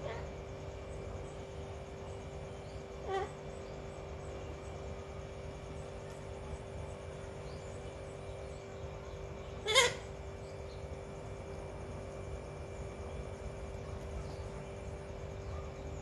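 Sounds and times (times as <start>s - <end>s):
steady low hum: 0.0s - 16.0s
parakeet squawk: 3.0s - 3.4s, 9.6s - 10.1s.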